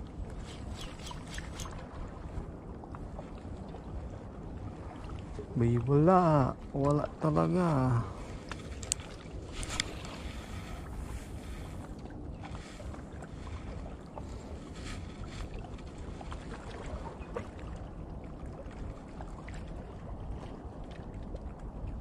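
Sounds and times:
wind buffeting microphone: 0.0s - 5.6s, 8.0s - 22.0s
soft lapping water: 0.0s - 22.0s
faint clicks: 8.5s - 10.2s.

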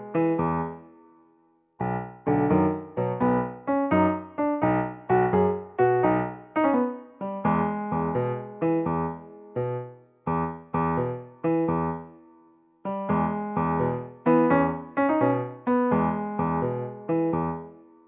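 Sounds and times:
light keyboard tune: 1.8s - 10.0s.

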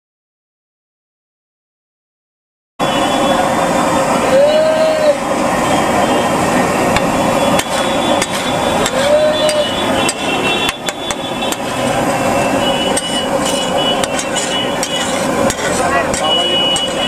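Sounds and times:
street noise: 2.8s - 17.0s
voices: 3.0s - 17.0s
metal spatula striking griddle: 7.0s - 12.2s, 12.9s - 17.0s.

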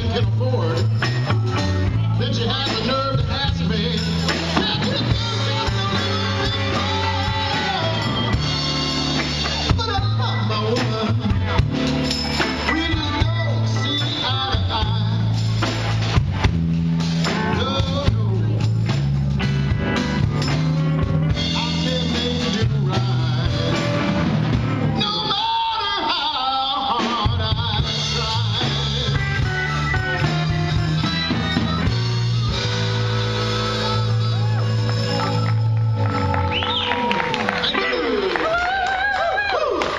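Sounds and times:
person singing: 0.0s - 15.7s, 17.2s - 19.0s, 20.4s - 32.7s
blues-rock band playing: 0.0s - 39.9s.

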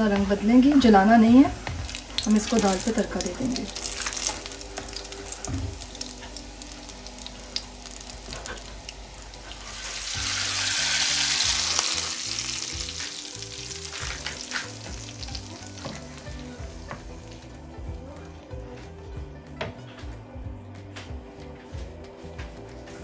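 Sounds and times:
spices sizzling in hot oil: 0.0s - 17.8s.

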